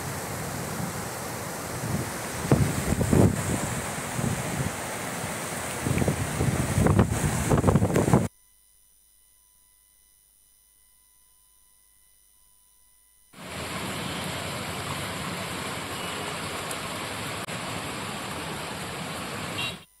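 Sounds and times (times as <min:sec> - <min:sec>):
floodwater rushing along street: 0:00.0 - 0:08.2, 0:13.4 - 0:19.8
faint steady hum: 0:00.0 - 0:20.0.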